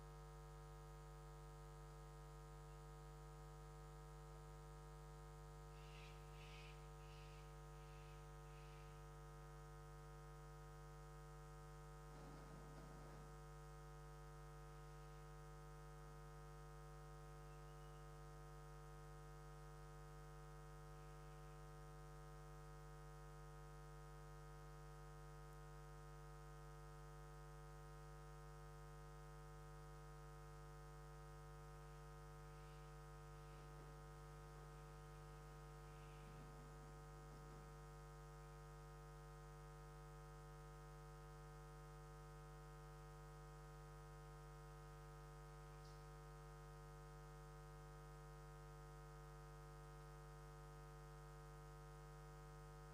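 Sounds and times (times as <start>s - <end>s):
faint electrical hum: 0.0s - 52.9s.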